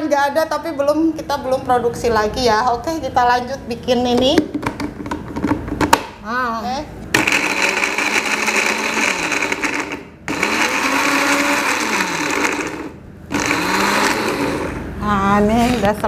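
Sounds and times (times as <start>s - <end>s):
electric blender grinding: 7.2s - 15.0s.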